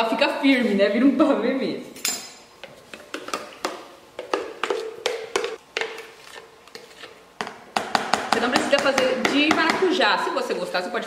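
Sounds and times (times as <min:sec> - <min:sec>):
knocks on plastic blender jar: 0:07.4 - 0:09.9.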